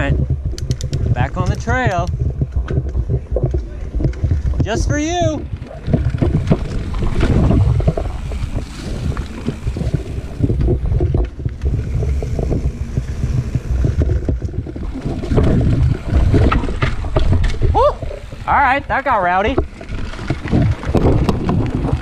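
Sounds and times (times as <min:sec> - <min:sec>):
bike clicks and knocks: 0:00.0 - 0:18.5, 0:19.3 - 0:22.0
bike tyre rumble on dirt: 0:00.0 - 0:22.0
wind rushing over microphone: 0:00.0 - 0:22.0.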